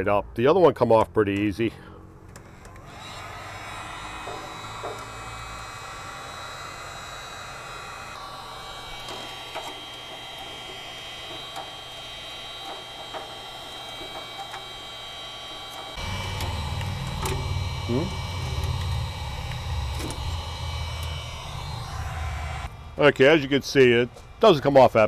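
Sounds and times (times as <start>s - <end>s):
heat gun blowing with whining fan: 2.3s - 25.0s
metal scraper scraping tape: 8.9s - 20.4s
low rumble: 16.0s - 24.4s.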